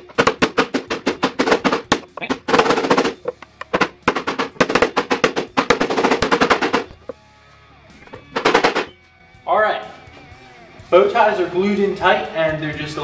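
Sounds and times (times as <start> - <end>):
hammer knocking wood: 0.1 - 7.1.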